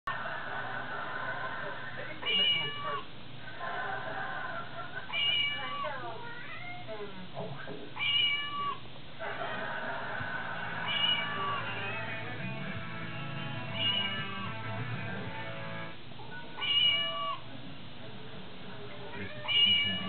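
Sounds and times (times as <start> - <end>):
ringtone of cat meow: 13.8 - 14.5.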